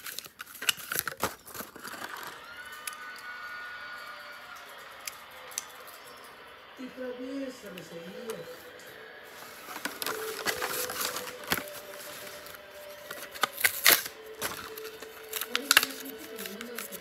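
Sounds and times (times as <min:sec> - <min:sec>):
packaging crinkling and tearing: 0:00.0 - 0:06.1, 0:09.3 - 0:17.0.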